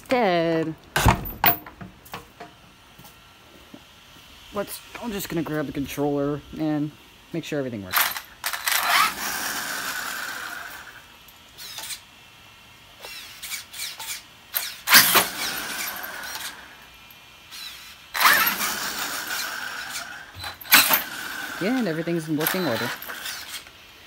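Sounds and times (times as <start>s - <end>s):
electric motor whining: 8.5s - 11.0s, 17.5s - 23.8s.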